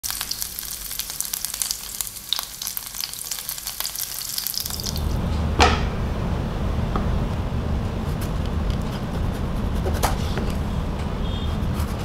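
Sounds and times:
oil sizzling in a frying pan: 0.0s - 5.2s
low rumble: 4.7s - 11.9s
sharp knock: 5.6s - 6.0s.

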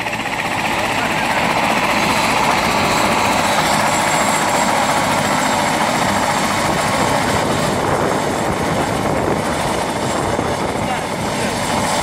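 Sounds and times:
helicopter running on ground: 0.0s - 12.0s
thin high turbine whine: 0.0s - 12.0s.

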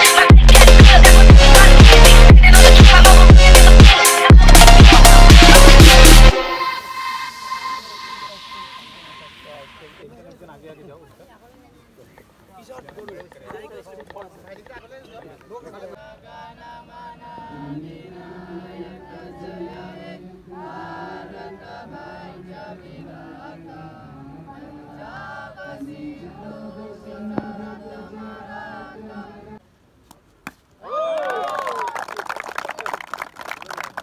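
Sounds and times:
boys and men singing together: 16.0s - 29.6s.

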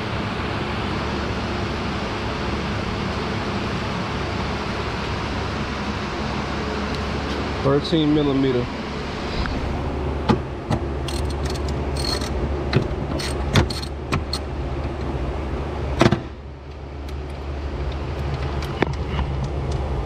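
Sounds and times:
steady low hum: 0.0s - 20.0s
hand tool clicking on metal: 11.1s - 12.3s.

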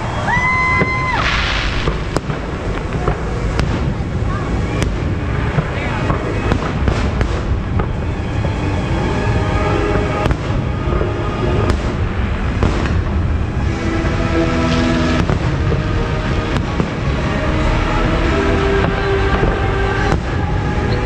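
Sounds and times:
low rumble: 0.0s - 21.0s
music: 0.0s - 21.0s
firework shells bursting: 0.8s - 4.0s.

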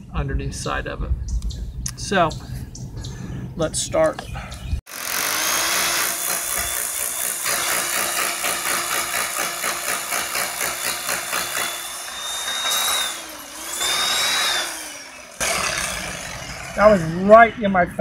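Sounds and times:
hammer drill boring: 4.9s - 16.9s.

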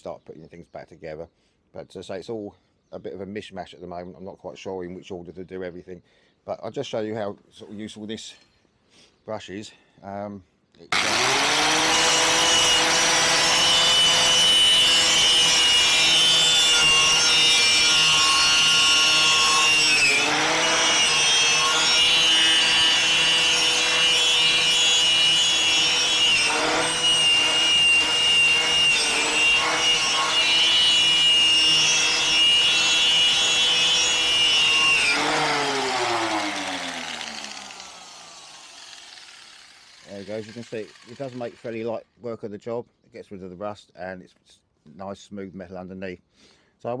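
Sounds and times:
angle grinder wire brush on metal: 11.0s - 41.9s.

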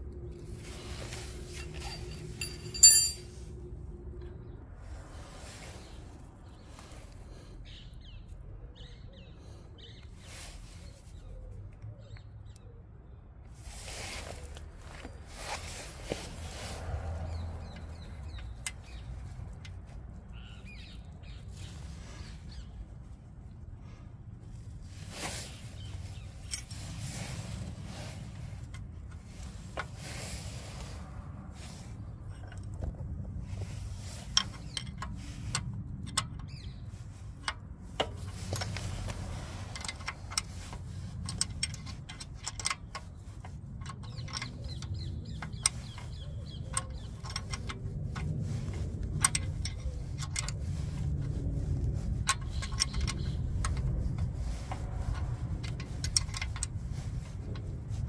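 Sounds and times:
metal tools clinking: 0.8s - 3.5s, 25.3s - 30.1s, 32.3s - 51.4s, 52.0s - 58.0s
steady low rumble: 13.6s - 58.0s.

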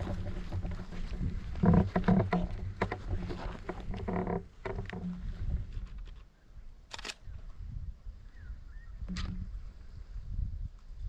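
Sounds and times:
bicycle rattling over rough track: 0.0s - 6.3s.

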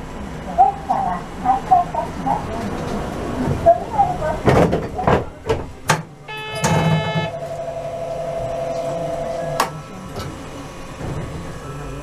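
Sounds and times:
steady buzzer tone: 6.3s - 9.7s.

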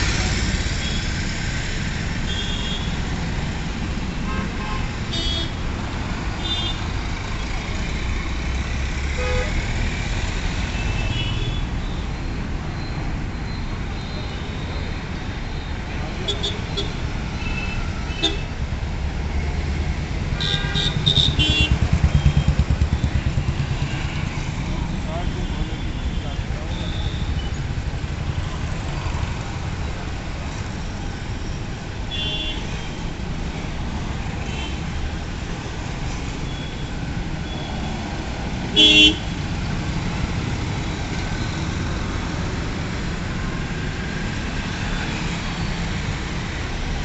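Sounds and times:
cars and motorcycles passing: 0.0s - 13.9s, 16.0s - 47.0s
road traffic rumble: 0.0s - 47.0s
vehicle horn toots: 20.4s - 21.8s, 38.8s - 39.4s
motorcycle passing with pulsing thump: 21.0s - 23.8s.

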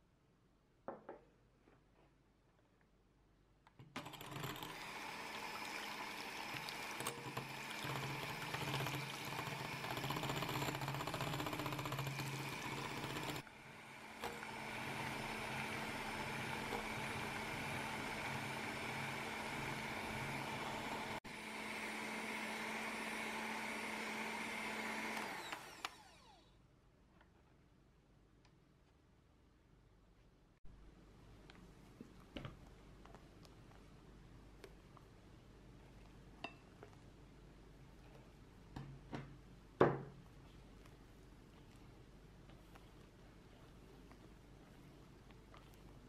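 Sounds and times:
electric hand mixer running: 4.0s - 26.5s.

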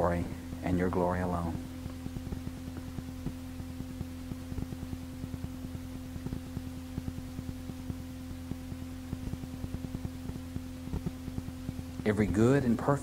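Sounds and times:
steady low hum: 0.0s - 13.0s
faint crackling clicks: 1.8s - 8.0s, 9.1s - 12.1s.

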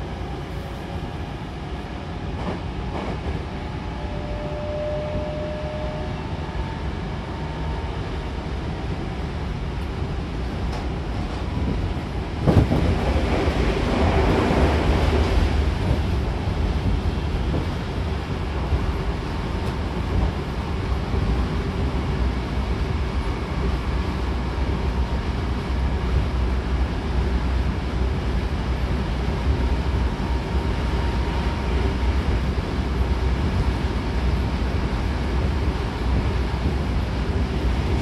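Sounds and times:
train wheels rumbling on rails: 0.0s - 38.0s.

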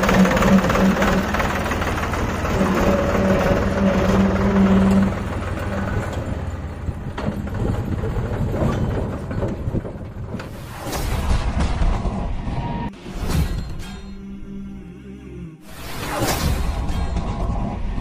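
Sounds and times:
tractor diesel engine running: 0.0s - 10.6s.

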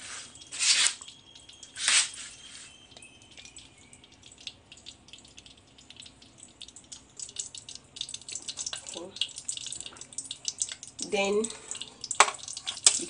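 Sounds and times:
short hiss: 0.0s - 1.0s, 1.8s - 2.7s
oil crackling and popping: 0.0s - 13.0s.

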